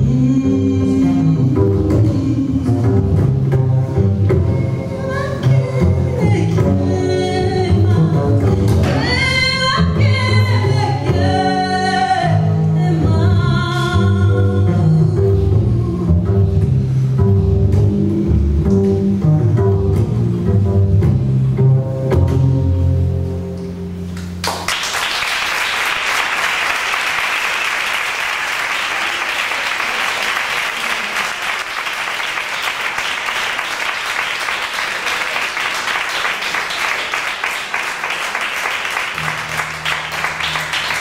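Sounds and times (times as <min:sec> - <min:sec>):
low instrumental notes: 0:00.0 - 0:24.4
audience applauding: 0:24.4 - 0:41.0.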